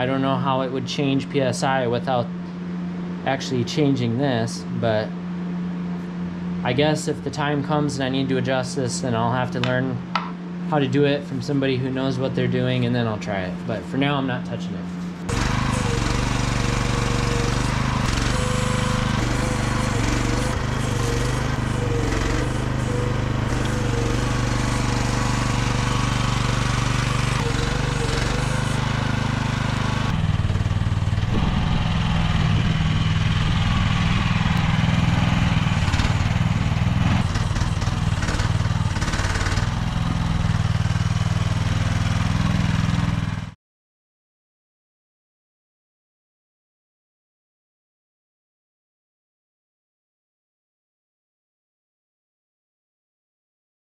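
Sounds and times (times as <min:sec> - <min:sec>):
excavator engine running: 0:06.6 - 0:43.5
hydraulic whine: 0:14.9 - 0:43.5.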